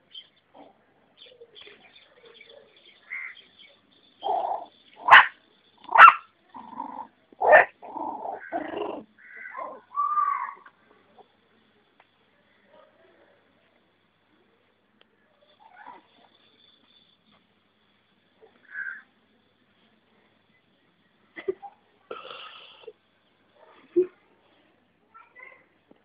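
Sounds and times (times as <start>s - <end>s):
puppies yipping and barking: 4.2s - 5.3s, 5.9s - 6.3s
puppy yelp: 6.0s - 6.2s.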